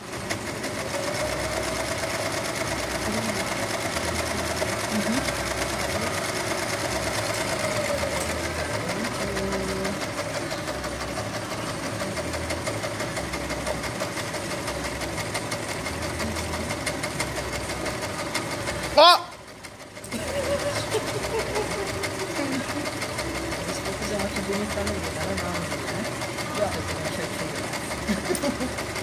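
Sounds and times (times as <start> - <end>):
overlock sewing machine running: 0.0 - 29.0.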